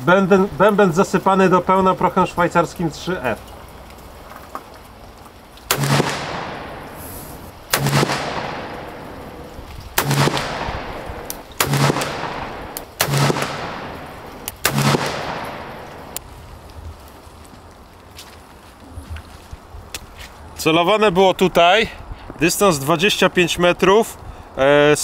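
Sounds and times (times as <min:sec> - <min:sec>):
revolver shots echoing: 0:05.7 - 0:16.2.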